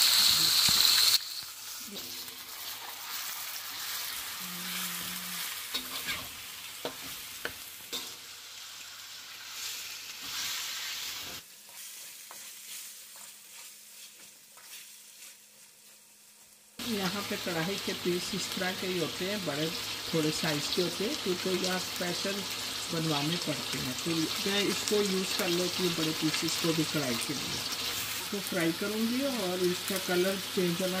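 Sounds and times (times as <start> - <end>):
chicken sizzling in hot oil: 0.0 - 31.0
metal spoon scraping pan: 5.4 - 8.2.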